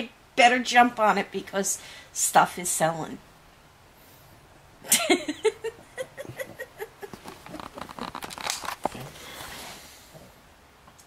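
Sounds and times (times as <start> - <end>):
rustling: 7.0 - 10.1.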